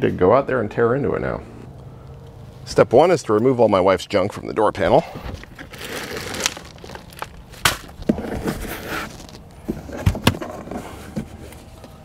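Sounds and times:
plastic bag crinkling: 5.4 - 8.1.

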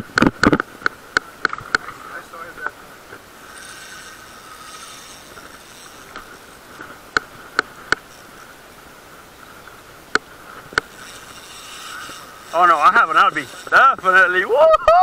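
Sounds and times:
steady hum: 0.0 - 15.0
fishing reel drag clicks: 3.4 - 8.3, 10.1 - 14.5.

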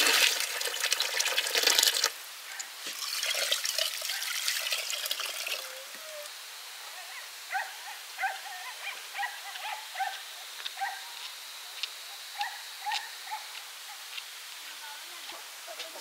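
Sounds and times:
background hiss: 0.0 - 16.0
animal calling: 5.5 - 14.1.

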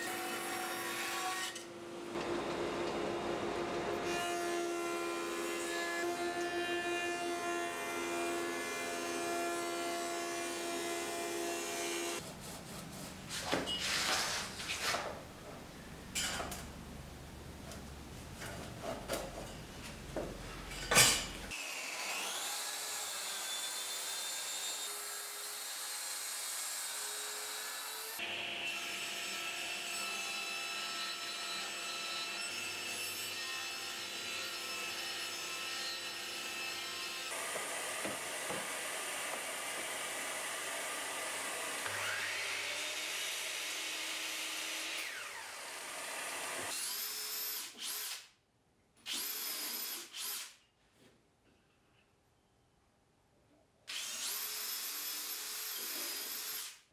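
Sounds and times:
mitre saw cutting: 21.5 - 48.1.

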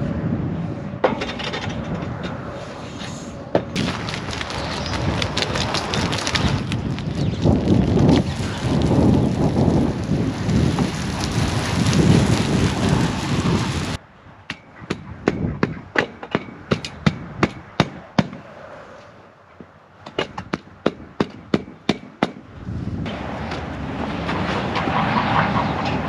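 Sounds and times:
rough noise: 0.0 - 14.0
hose water spraying on dirt: 3.8 - 14.0.

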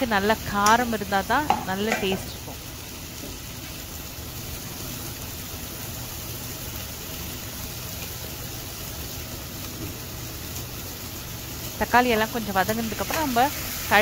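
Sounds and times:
masala sizzling in oil: 0.0 - 14.0.

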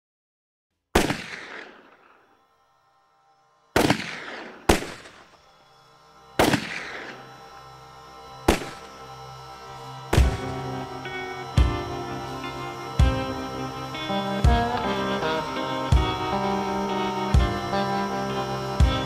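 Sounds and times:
gunshots with echoing tail: 1.0 - 2.3, 3.8 - 5.4, 6.4 - 7.3, 8.5 - 8.9, 10.1 - 10.6
quiet sustained music: 1.0 - 19.0.

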